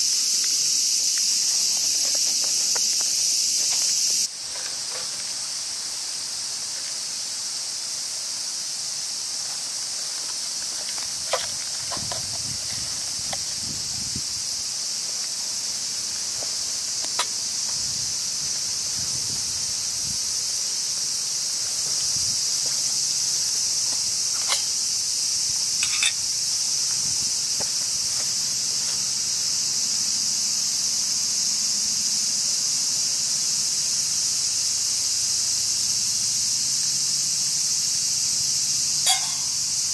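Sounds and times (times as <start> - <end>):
insects droning: 0.0 - 39.9
metal cookware clicking: 25.8 - 26.2, 39.1 - 39.5.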